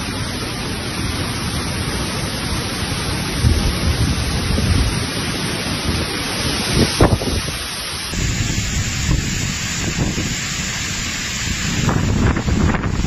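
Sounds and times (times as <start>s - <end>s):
heavy rain and wind: 0.0s - 13.0s
thunder rumbles: 3.4s - 5.2s, 8.1s - 13.0s.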